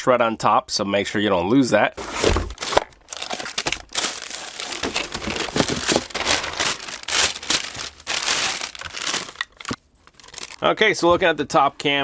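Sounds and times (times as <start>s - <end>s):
plastic bags crinkling: 2.0s - 10.7s.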